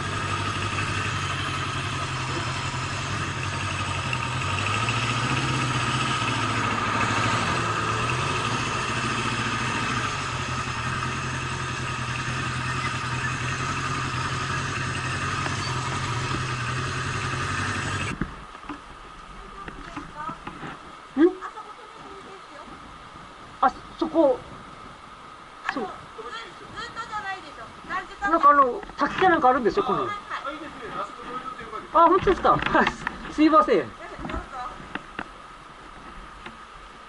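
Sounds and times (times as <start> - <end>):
motorcycle engine idling: 0.0 - 18.2.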